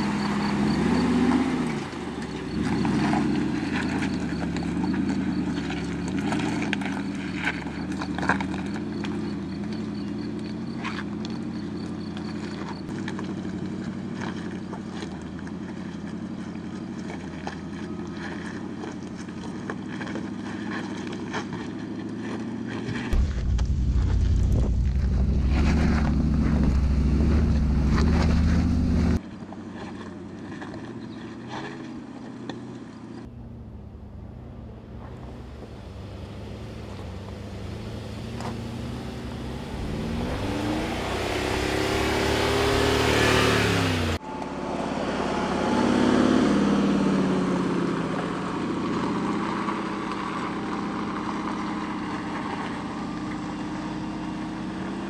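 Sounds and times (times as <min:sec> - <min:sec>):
suv engine running under load: 0:00.0 - 0:29.2, 0:32.9 - 0:55.0
tires on gravel: 0:00.0 - 0:55.0
loud deep rumble: 0:23.1 - 0:29.2, 0:33.3 - 0:48.8.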